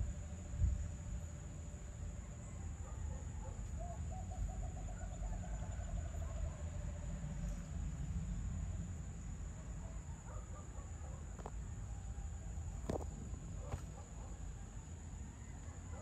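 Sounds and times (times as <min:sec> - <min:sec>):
low outdoor rumble: 0:00.0 - 0:16.0
distant bird call: 0:02.2 - 0:07.1.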